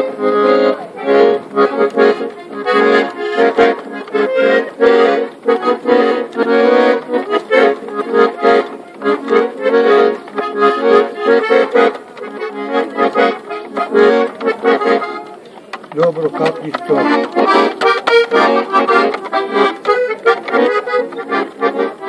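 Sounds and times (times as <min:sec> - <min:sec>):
accordion playing a tune: 0:00.0 - 0:22.0.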